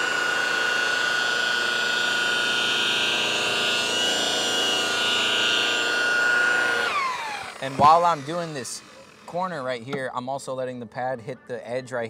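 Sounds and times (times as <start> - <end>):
electric polisher motor whine: 0.0 - 9.6.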